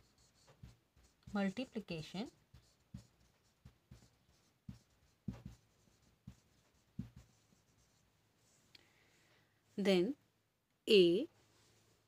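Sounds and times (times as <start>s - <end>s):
marker writing on whiteboard: 0.0s - 8.1s.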